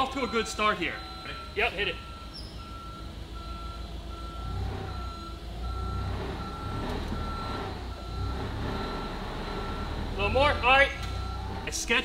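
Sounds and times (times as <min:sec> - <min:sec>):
forklift reversing alarm beeping: 0:00.0 - 0:11.9
forklift engine running: 0:00.0 - 0:12.0.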